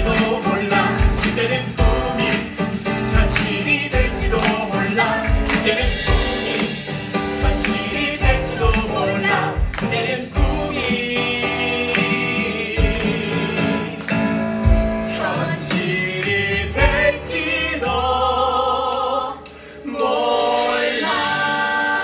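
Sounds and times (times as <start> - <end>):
man and woman singing with band: 0.0 - 22.0.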